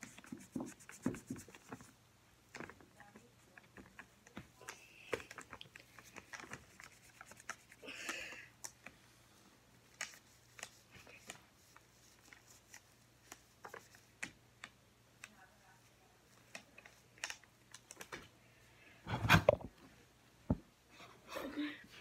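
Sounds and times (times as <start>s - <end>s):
washcloth rubbing doll: 0.0s - 1.8s.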